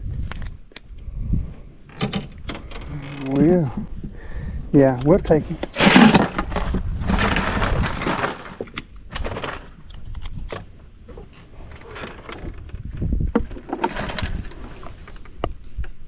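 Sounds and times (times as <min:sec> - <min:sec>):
rustling and handling noise: 0:04.8 - 0:16.0.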